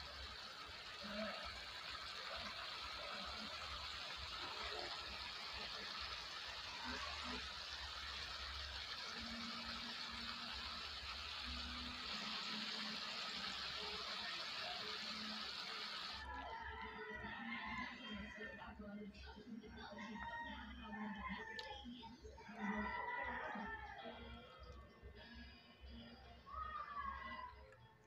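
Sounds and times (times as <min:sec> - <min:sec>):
sauce bubbling in a wok: 0:00.0 - 0:16.2.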